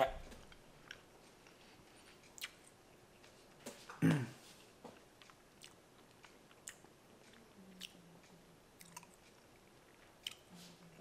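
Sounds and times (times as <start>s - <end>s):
faint low hum: 0.0s - 11.0s
chewing with mouth clicks: 0.8s - 2.8s, 5.2s - 8.0s, 8.8s - 10.6s.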